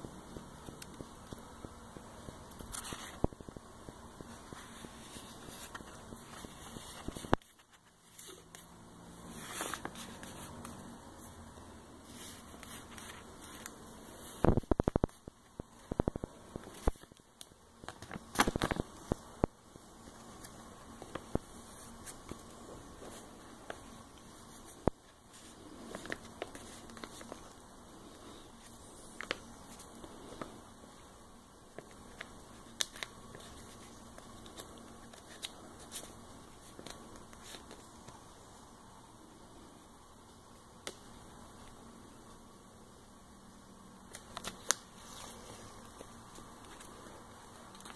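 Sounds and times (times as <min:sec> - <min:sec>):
papery rustling: 0:02.5 - 0:03.6, 0:04.2 - 0:11.4, 0:12.0 - 0:17.2, 0:20.0 - 0:30.6
sharp paper crackles: 0:17.8 - 0:19.2.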